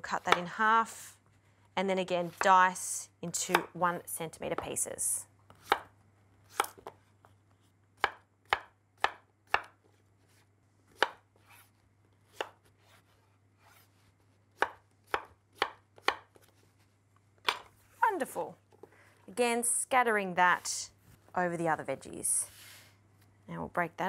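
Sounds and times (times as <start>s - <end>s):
knife chopping on wooden board: 5.5s - 5.9s, 8.0s - 9.8s, 10.9s - 11.2s, 12.3s - 12.6s, 14.6s - 16.4s.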